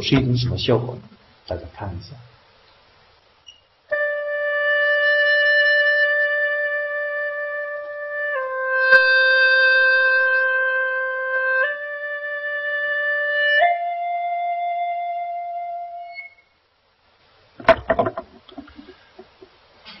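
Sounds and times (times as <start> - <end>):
gourd flute long notes: 3.9 - 16.4.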